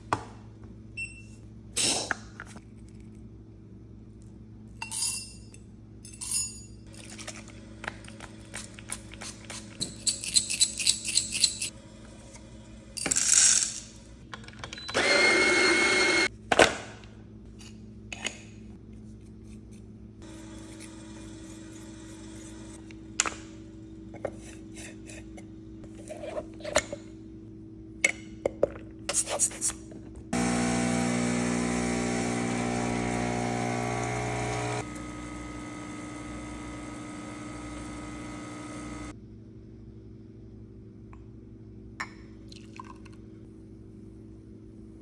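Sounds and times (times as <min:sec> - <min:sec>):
electric coffee grinder running: 0:15.0 - 0:16.3, 0:20.2 - 0:22.8, 0:30.4 - 0:39.1.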